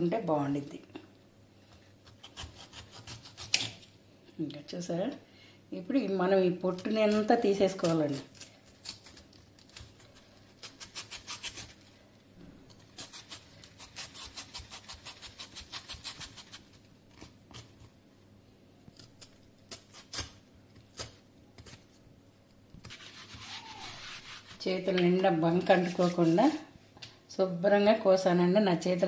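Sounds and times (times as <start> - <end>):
knife cutting fruit rind: 1.7 - 3.8, 6.7 - 11.9, 12.7 - 17.9, 18.9 - 21.9.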